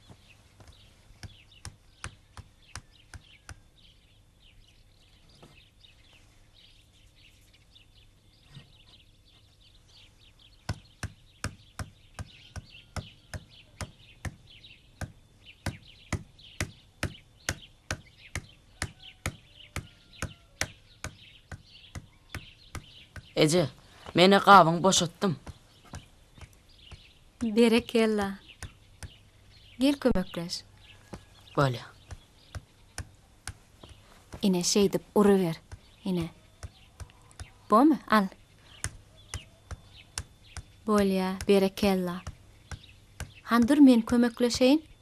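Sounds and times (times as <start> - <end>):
birds chirping: 0.0 - 45.0
wooden pestle pounding in mortar: 10.7 - 23.4, 35.6 - 37.6, 38.8 - 43.7.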